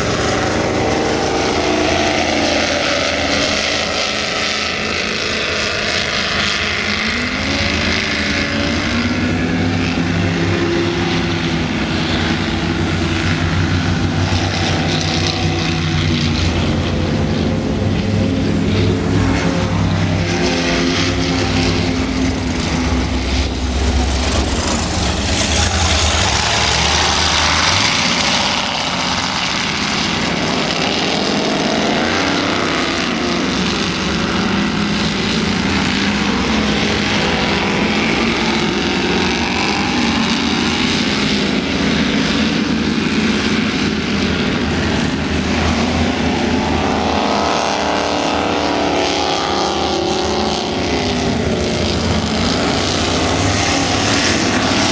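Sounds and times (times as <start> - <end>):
powerboat engines passing: 0.0 - 54.9
steady rush of noise: 0.0 - 54.9.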